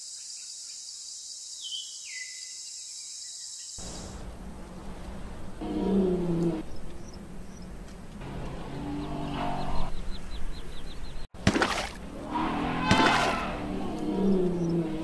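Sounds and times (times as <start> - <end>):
elephants calling: 3.8 - 10.0, 12.0 - 15.0
bird chirping rapidly: 6.6 - 7.9, 12.8 - 15.0.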